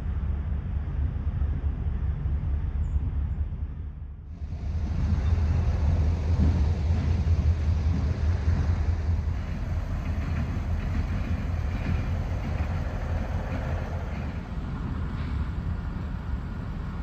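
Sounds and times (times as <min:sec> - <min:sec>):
freight train rumbling: 0:00.0 - 0:17.0.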